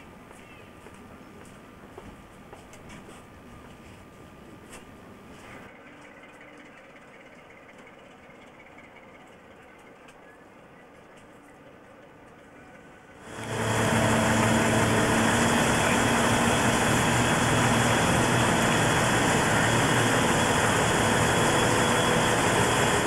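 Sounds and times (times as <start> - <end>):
heavy engine running: 13.2 - 23.0.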